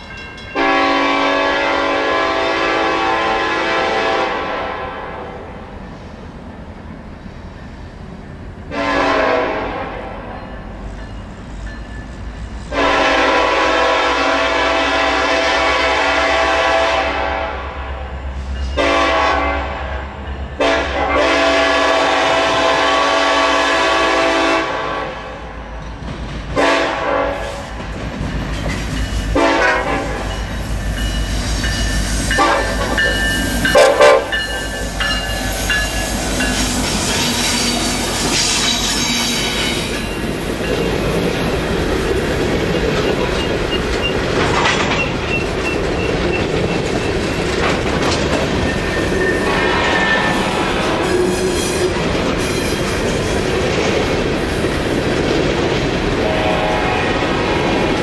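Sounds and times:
locomotive multi-chime horn: 0:00.0 - 0:05.4, 0:11.8 - 0:25.2, 0:26.6 - 0:27.5, 0:28.9 - 0:40.8, 0:48.6 - 0:51.7, 0:56.2 - 0:57.2
wheels clattering over rails: 0:36.4 - 0:49.4
faint high wheel squeal: 0:48.7 - 0:51.9.

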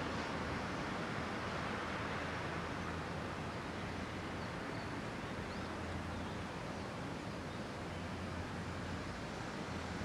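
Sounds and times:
faint bird chirps: 0:04.4 - 0:06.4.

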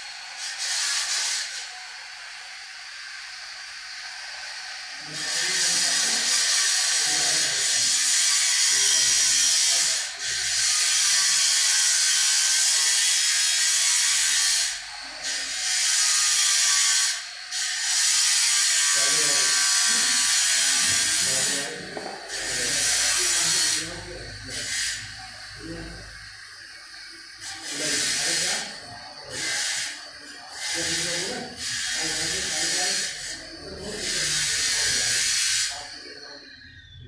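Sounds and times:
high-pitched machine hiss: 0:00.0 - 0:37.0.

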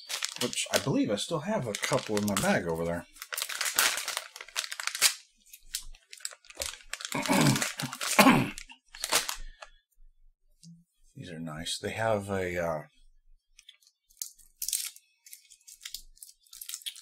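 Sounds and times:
snack wrapper crinkling and tearing: 0:00.0 - 0:09.7, 0:13.6 - 0:17.0.

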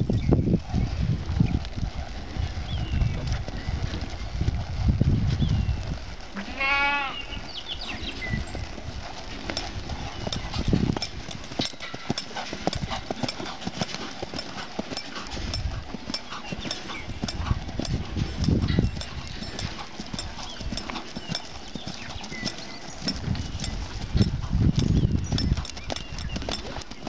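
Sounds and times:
horse hoofbeats on dirt: 0:00.0 - 0:27.0
low rumbles: 0:07.2 - 0:27.0.

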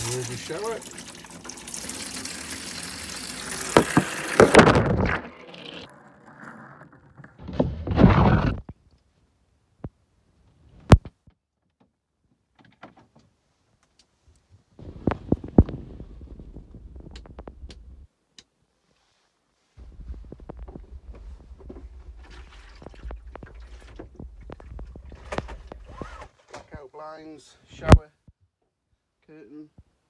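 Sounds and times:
shower spraying into plastic basin: 0:00.0 - 0:04.8
knocks: 0:03.7 - 0:05.0.

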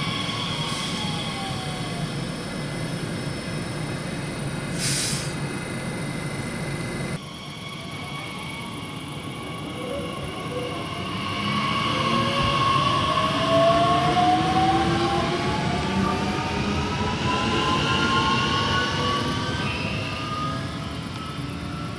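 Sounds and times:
approaching train whine: 0:00.0 - 0:21.9
electric train whining: 0:00.0 - 0:21.9
rail noise: 0:00.0 - 0:21.9
air hiss: 0:04.7 - 0:05.4.

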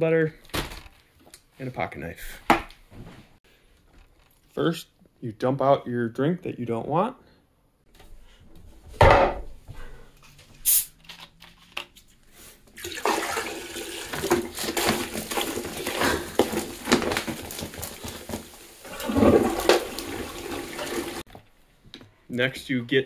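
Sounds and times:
soda splashing into toilet water: 0:12.8 - 0:21.3.

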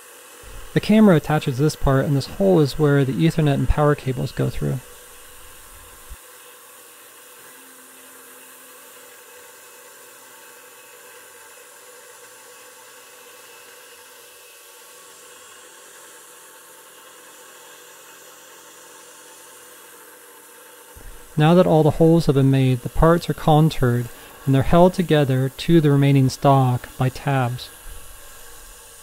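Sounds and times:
coolant mist spray hissing: 0:00.0 - 0:06.2, 0:15.0 - 0:29.0
milling machine hum: 0:00.0 - 0:29.0.

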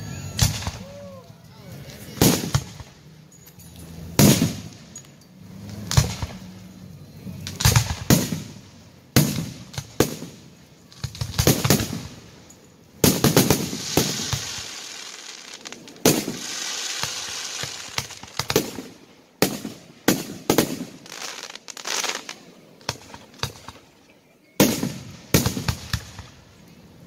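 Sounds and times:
firework crackling: 0:00.0 - 0:24.0, 0:24.6 - 0:27.0
firework shells bursting: 0:02.1 - 0:06.7, 0:07.4 - 0:23.9.

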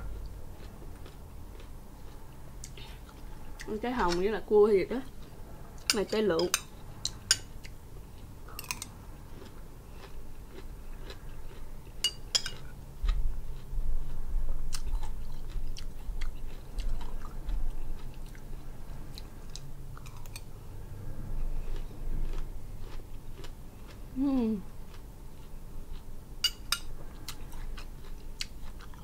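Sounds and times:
chewing pomegranate seeds: 0:00.0 - 0:04.3, 0:07.0 - 0:20.5, 0:21.4 - 0:29.0
metal spoon clinking on glass bowl: 0:12.0 - 0:12.6, 0:26.4 - 0:26.9.

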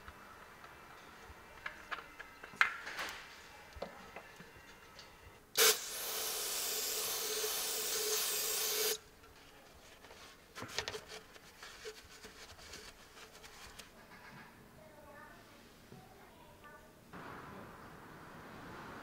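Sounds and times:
loud steady hiss: 0:05.6 - 0:09.0.

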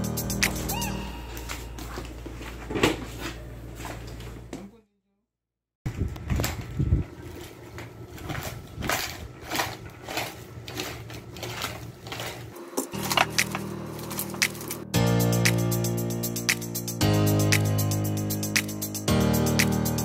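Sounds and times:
plastic wrapping crinkling: 0:06.2 - 0:14.9.

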